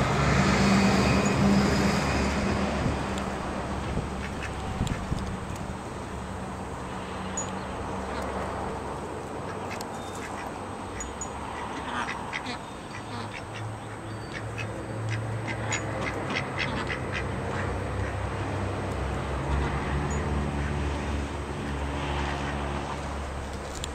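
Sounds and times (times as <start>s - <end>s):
ducks quacking: 11.6s - 18.2s.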